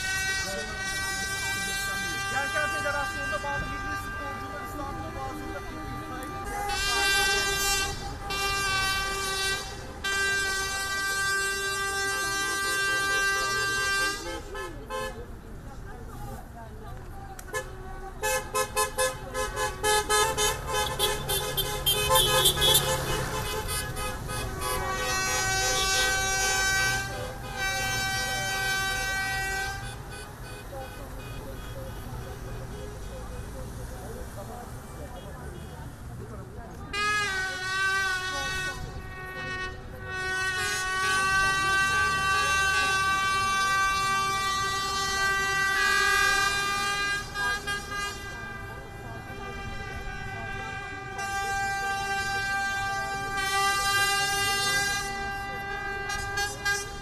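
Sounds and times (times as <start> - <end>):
boat horn blast: 0.0 - 15.4, 17.5 - 33.6, 36.7 - 57.0
car horns honking short toots: 17.5 - 33.0.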